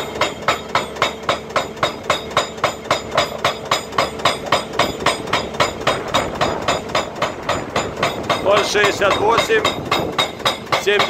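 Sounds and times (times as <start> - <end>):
excavator engine running: 0.0 - 11.0
hydraulic breaker hammering rock: 0.0 - 11.0.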